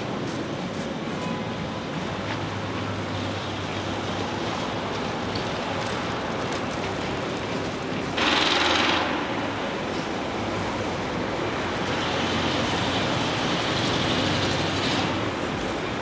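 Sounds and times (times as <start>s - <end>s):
distant traffic: 0.0s - 16.0s.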